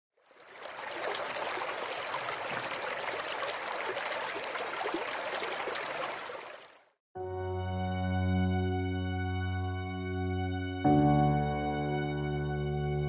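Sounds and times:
stream water splashing: 0:00.1 - 0:07.0.

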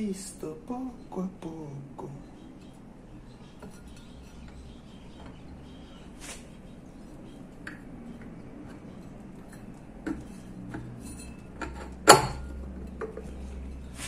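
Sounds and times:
low steady hum: 0:00.0 - 0:14.0
faint metallic clinks: 0:02.6 - 0:05.4, 0:07.5 - 0:14.0.

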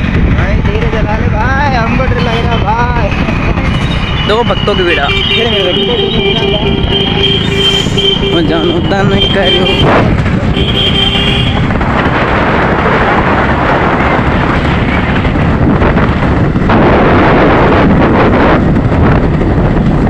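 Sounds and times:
moving vehicle road noise: 0:00.0 - 0:20.0
wind buffeting microphone: 0:00.0 - 0:20.0
horn beeping: 0:02.0 - 0:11.7.

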